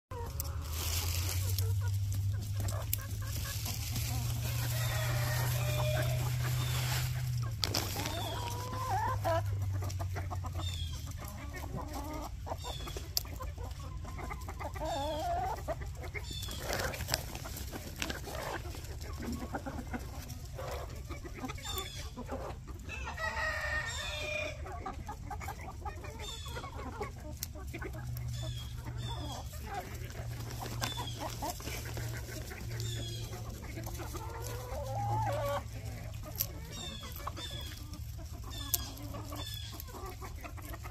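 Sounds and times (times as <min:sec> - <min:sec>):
chickens clucking: 0:00.1 - 0:40.9
rooster crowing: 0:04.6 - 0:06.2.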